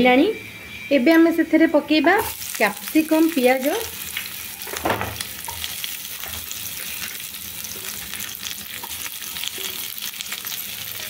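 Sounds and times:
hot oil sizzling: 0:02.0 - 0:11.0.

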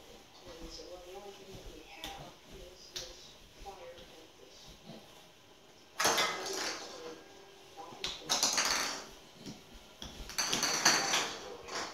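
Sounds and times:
plastic ball clattering on tiles: 0:06.0 - 0:07.1, 0:08.0 - 0:11.9.

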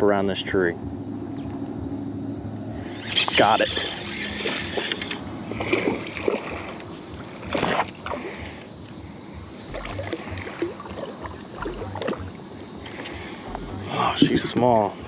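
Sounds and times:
water sloshing: 0:03.2 - 0:14.4
fish splashing at surface: 0:09.7 - 0:12.3.

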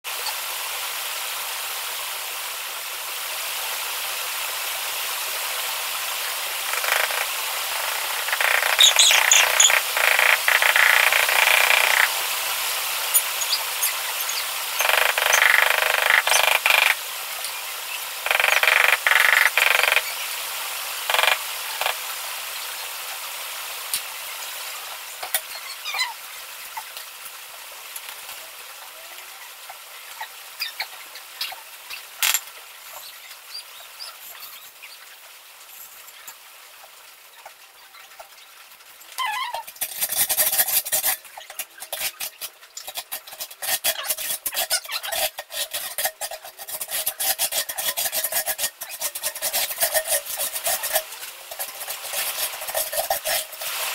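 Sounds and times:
trowel scraping mortar: 0:39.7 - 0:53.9.

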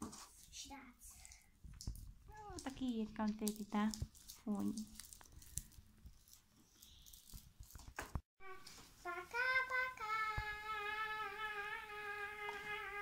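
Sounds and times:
child singing a long note: 0:08.4 - 0:13.0.

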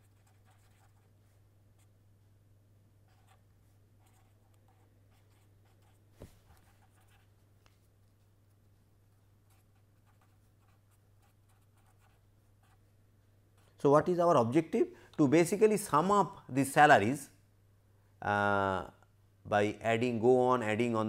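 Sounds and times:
marker pen scratching on paper: 0:00.0 - 0:01.2, 0:03.0 - 0:07.4, 0:09.4 - 0:12.9
low steady hum: 0:00.0 - 0:21.0.

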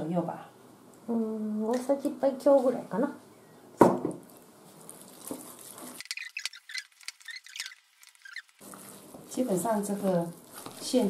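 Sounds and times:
chopsticks stirring wet filling: 0:04.3 - 0:11.0.

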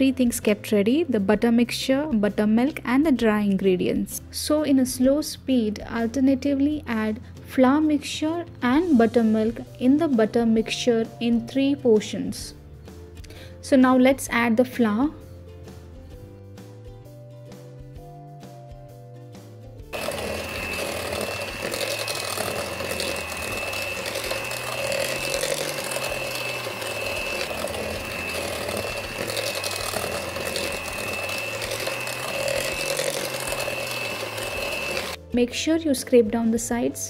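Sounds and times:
background music: 0:00.0 - 0:37.0
electric hand mixer running: 0:19.9 - 0:35.2.

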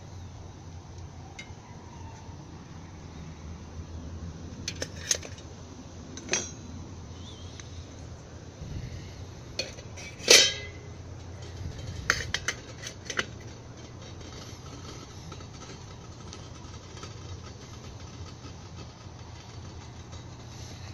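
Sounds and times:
pot lid clinking: 0:09.6 - 0:10.9
metal pot clanking on stove: 0:09.6 - 0:13.4.

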